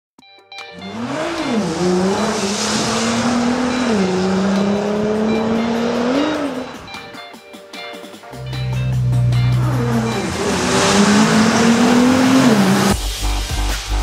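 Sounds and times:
racing car engine revving: 0:00.8 - 0:07.0, 0:08.5 - 0:13.0
road and wind rushing: 0:00.8 - 0:07.2, 0:08.4 - 0:13.0.

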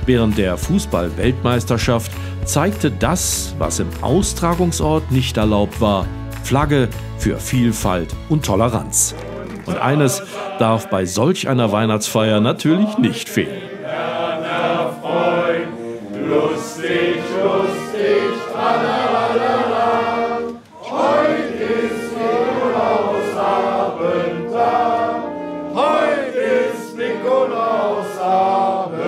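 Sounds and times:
men singing together: 0:09.2 - 0:11.2, 0:13.4 - 0:25.2, 0:25.8 - 0:29.0.

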